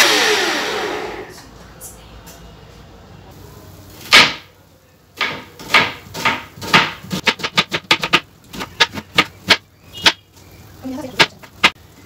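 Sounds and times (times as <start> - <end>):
knife chopping on plastic board: 5.2 - 10.2.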